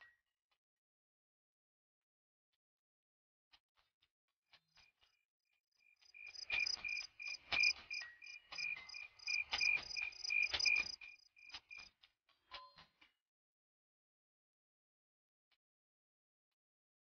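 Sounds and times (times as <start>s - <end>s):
crickets chirping: 5.8s - 11.9s.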